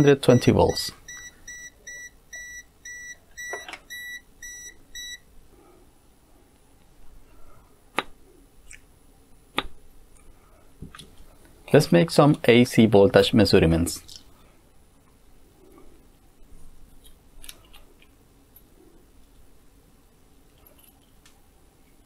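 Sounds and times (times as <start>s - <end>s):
voltage detector beeping: 1.1s - 5.2s.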